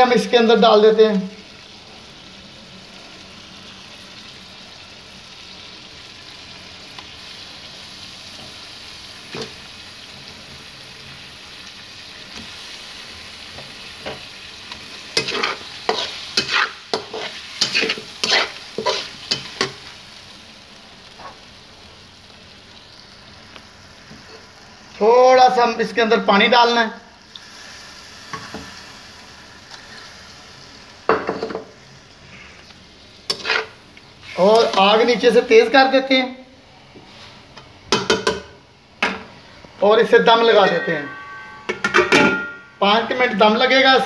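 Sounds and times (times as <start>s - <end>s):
food sizzling in a pan: 0.0s - 44.0s
spatula scraping and knocking pan: 15.2s - 19.8s, 33.3s - 33.8s.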